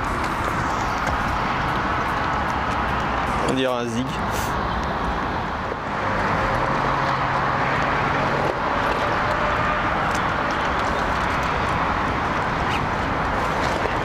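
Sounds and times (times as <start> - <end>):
low steady drone: 0.0 - 3.6
city road traffic: 0.0 - 14.0.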